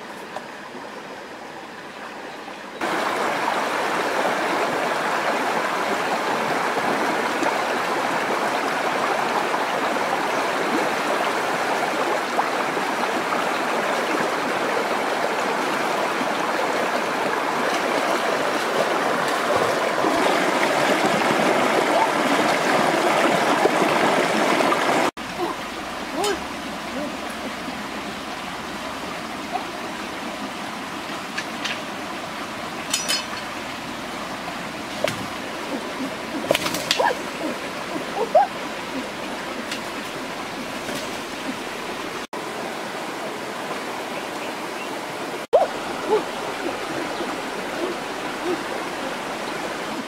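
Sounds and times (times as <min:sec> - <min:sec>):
flowing water rushing: 0:00.0 - 0:50.0.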